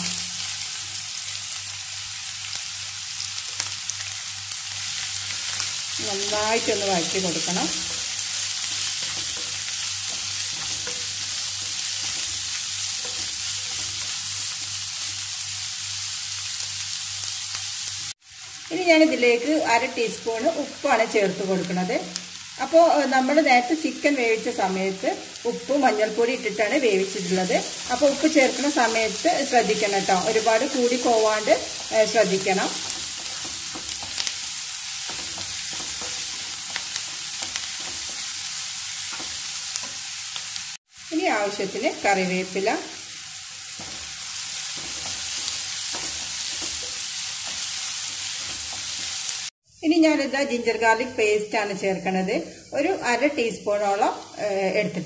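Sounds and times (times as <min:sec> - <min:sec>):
onions sizzling in a pan: 0:00.0 - 0:55.0
wooden spatula stirring: 0:06.6 - 0:15.2, 0:31.0 - 0:40.1, 0:43.7 - 0:49.3.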